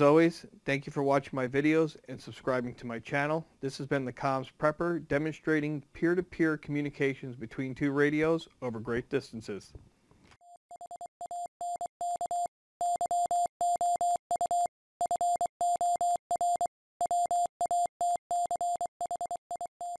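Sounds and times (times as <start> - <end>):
morse code beeps: 10.4 - 20.0.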